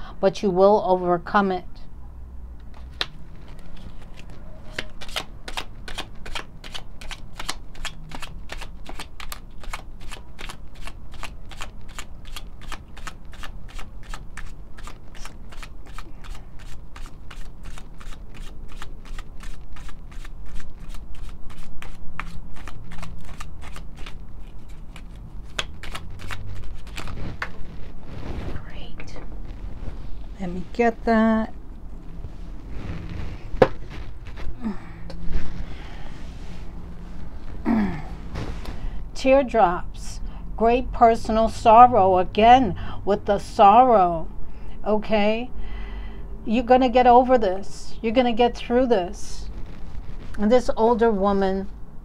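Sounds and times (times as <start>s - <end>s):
cards shuffled by hand: 2.7s - 28.6s.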